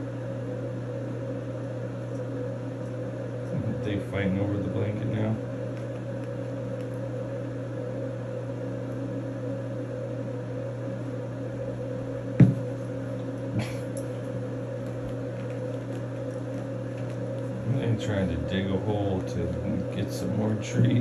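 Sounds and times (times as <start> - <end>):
mechanical hum: 0.0 - 21.0
sharp knock: 12.4 - 12.6.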